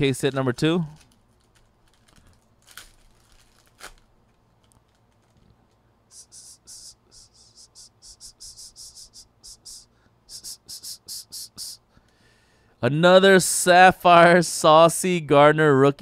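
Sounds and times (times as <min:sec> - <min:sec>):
foil pouch crinkling: 0:00.2 - 0:05.8.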